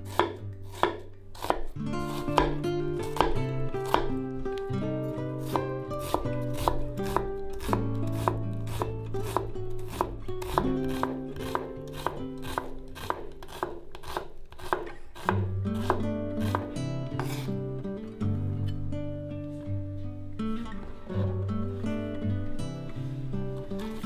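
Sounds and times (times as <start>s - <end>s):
knife chopping on wooden board: 0.0s - 4.2s, 5.4s - 17.5s
soft background music: 0.0s - 13.3s.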